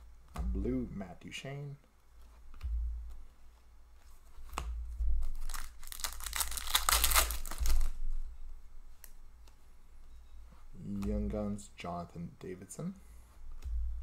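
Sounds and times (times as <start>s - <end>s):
foil wrapper tearing and crinkling: 5.2s - 8.0s.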